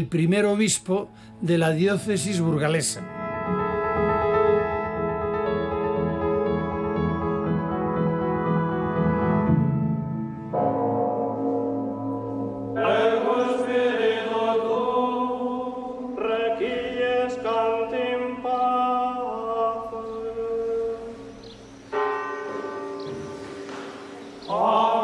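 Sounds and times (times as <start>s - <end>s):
choral voices chanting: 12.8s - 21.2s, 24.4s - 25.0s.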